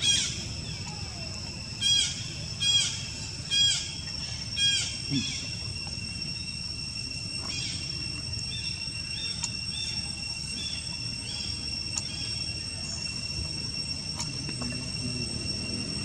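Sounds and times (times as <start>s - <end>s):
insects droning: 0.0s - 16.0s
faint clicks: 9.4s - 9.6s.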